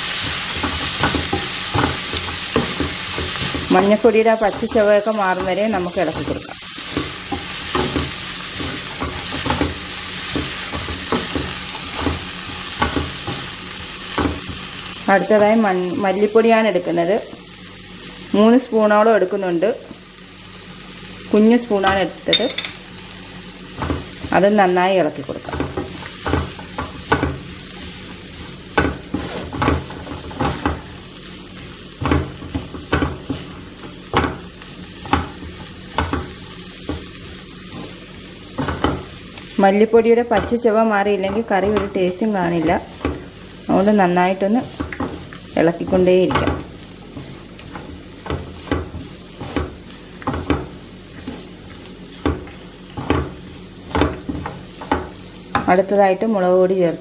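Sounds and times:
food sizzling in oil: 0.0 - 57.0
spatula scraping a pan: 27.8 - 30.9.

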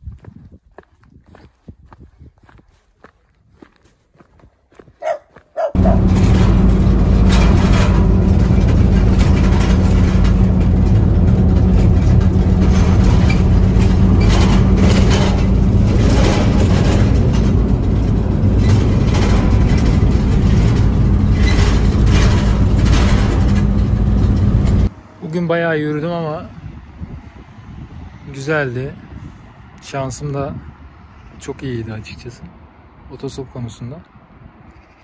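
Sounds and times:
road and tyre noise: 0.0 - 35.0
van engine drone: 5.7 - 25.0.

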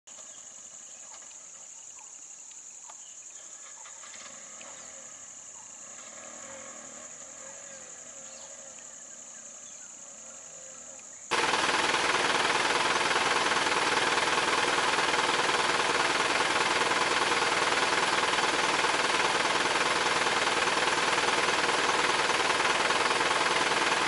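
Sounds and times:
loud rough noise: 11.3 - 24.0.

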